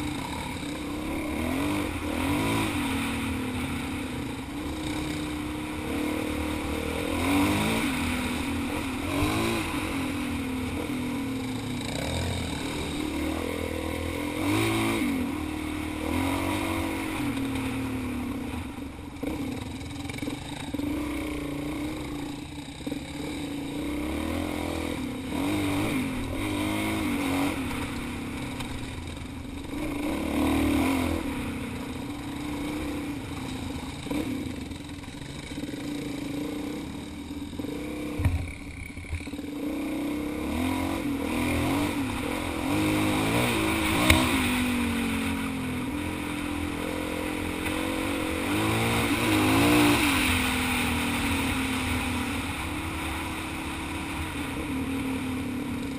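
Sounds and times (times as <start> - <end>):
motorcycle engine revving: 0.0 - 55.9.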